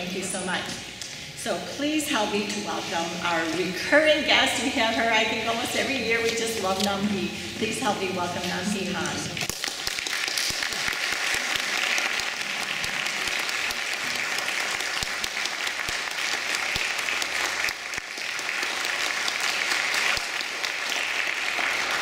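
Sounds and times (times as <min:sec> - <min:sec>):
audience applauding: 0:09.3 - 0:22.0.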